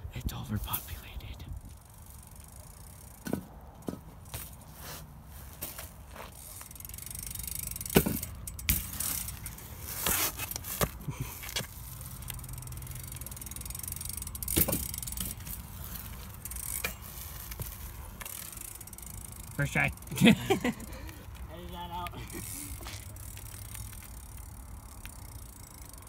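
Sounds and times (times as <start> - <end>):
bike rattling: 1.6 - 26.0
bike tyres rolling on concrete: 1.6 - 26.0
sharp knocks from bike: 3.1 - 4.6, 7.8 - 9.3, 14.4 - 15.4.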